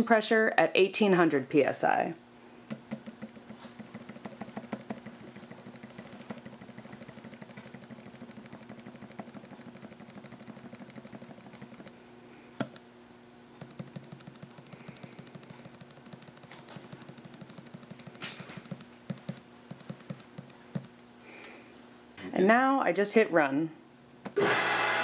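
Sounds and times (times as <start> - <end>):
low steady hum: 0.0 - 24.4
rapid touchscreen clicking: 2.7 - 12.0, 12.6 - 12.8, 13.6 - 21.0.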